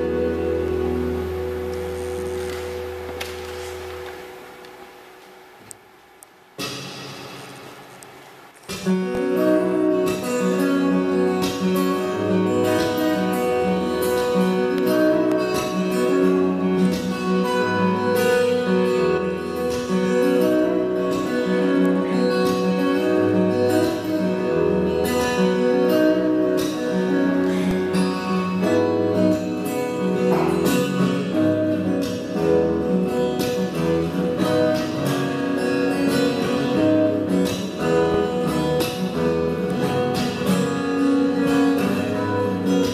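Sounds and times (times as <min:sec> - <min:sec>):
solo acoustic guitar playing: 0:00.0 - 0:42.9
percussive strokes on guitar strings: 0:26.5 - 0:42.9.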